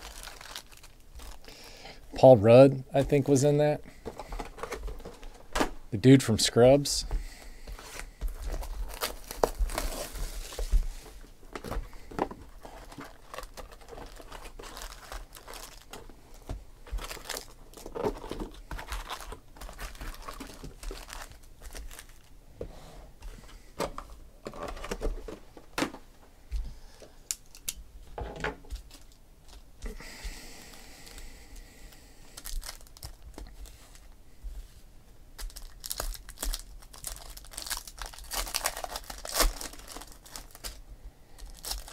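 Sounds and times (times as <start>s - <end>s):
foil pack ripping open: 0.0s - 1.6s, 8.5s - 10.8s, 12.4s - 16.1s, 16.9s - 22.3s, 32.3s - 33.4s, 35.4s - 40.8s, 41.4s - 41.9s
foil wrappers crinkling: 0.0s - 2.0s, 7.8s - 22.3s, 31.8s - 34.2s, 35.4s - 41.9s.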